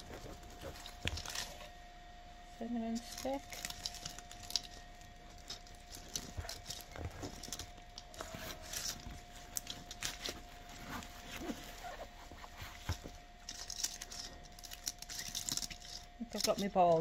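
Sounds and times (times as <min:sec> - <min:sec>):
faint steady tone: 0:00.0 - 0:17.0.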